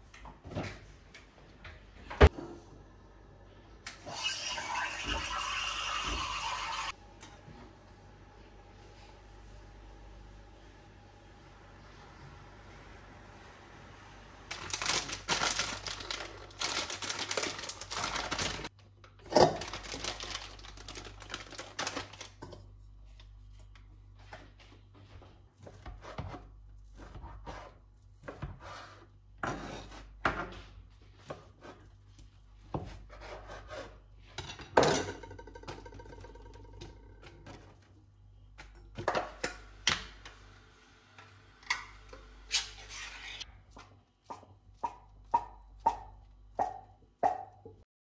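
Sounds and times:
food rustling in metal bowl: 0:14.5 - 0:18.7.

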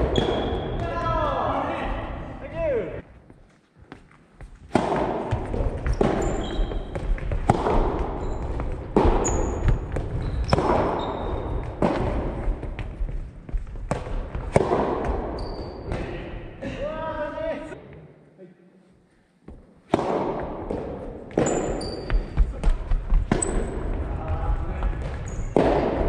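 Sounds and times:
sneakers squeaking on floor: 0:00.0 - 0:01.0, 0:03.2 - 0:16.2, 0:21.2 - 0:25.8
ball bouncing on wooden floor: 0:03.9 - 0:16.1, 0:19.5 - 0:26.0
rackets hitting rubber ball: 0:04.7 - 0:16.2, 0:19.5 - 0:24.0, 0:24.9 - 0:26.0.

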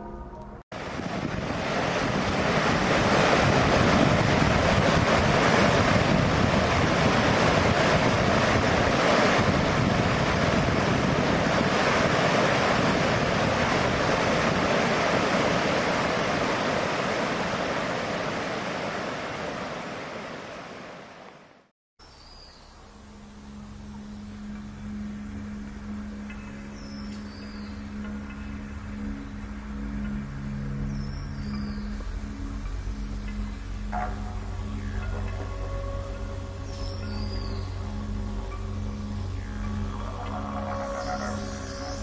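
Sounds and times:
water rushing over rocks: 0:00.8 - 0:21.4.

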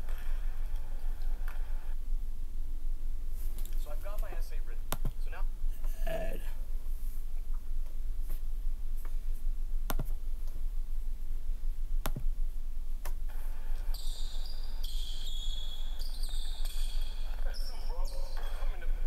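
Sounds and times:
steady low hum: 0:00.0 - 0:19.0
mouse clicks: 0:09.9 - 0:10.2
sneakers squeaking on hardwood: 0:13.9 - 0:17.4.

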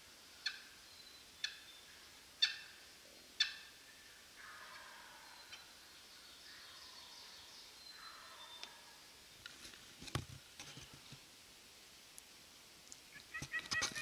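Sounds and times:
wild turkey alarm notes: 0:00.4 - 0:09.1, 0:13.1 - 0:14.0.

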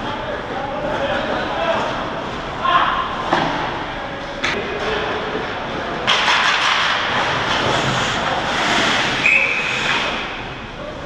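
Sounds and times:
skate blades scraping ice: 0:06.2 - 0:10.3.

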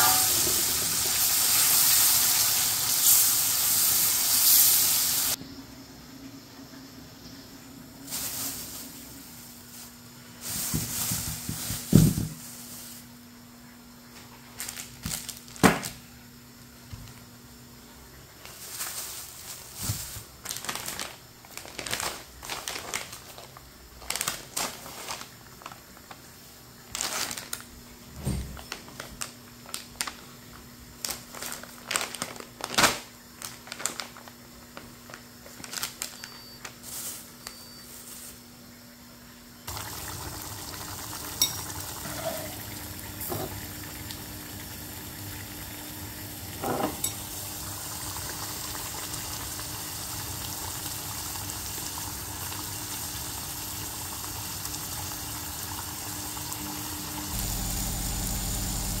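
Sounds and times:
plastic bags crinkling: 0:08.1 - 0:13.1, 0:14.4 - 0:16.0, 0:18.4 - 0:27.8, 0:28.6 - 0:30.4, 0:31.0 - 0:38.4.

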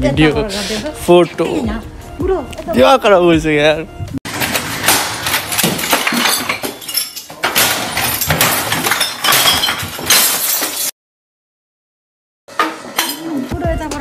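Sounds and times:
hard objects clattering: 0:04.3 - 0:10.9.

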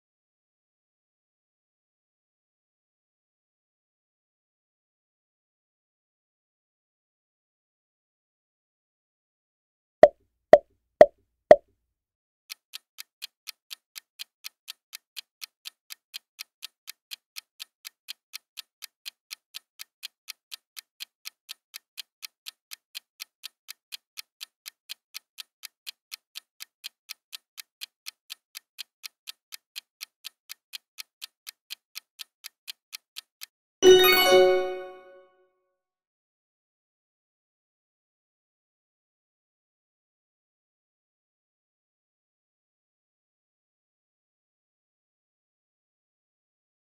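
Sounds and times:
clock ticking: 0:12.5 - 0:35.0.

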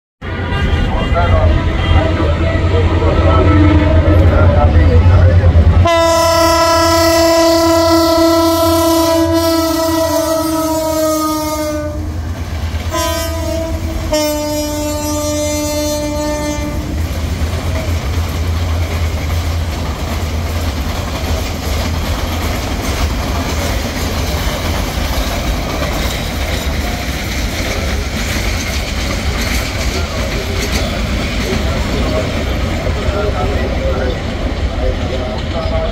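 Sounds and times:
locomotive air horn blasts: 0:00.2 - 0:02.5, 0:05.8 - 0:12.2, 0:12.9 - 0:17.0
train coaches rumbling on rails: 0:00.2 - 0:35.9.

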